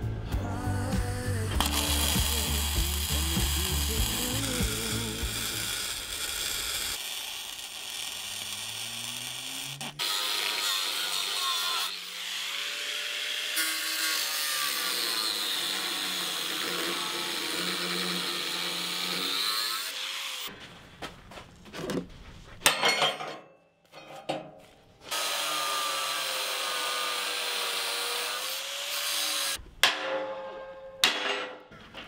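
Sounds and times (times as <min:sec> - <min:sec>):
angle grinder grinding steel: 0:01.6 - 0:20.5, 0:25.1 - 0:29.6
sharp metal knocks: 0:29.8 - 0:31.7.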